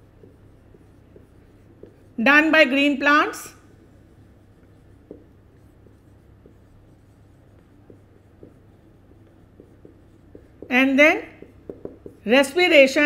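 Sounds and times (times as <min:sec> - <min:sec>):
marker scratching on whiteboard: 0:00.0 - 0:13.0
steady low hum: 0:00.0 - 0:13.0.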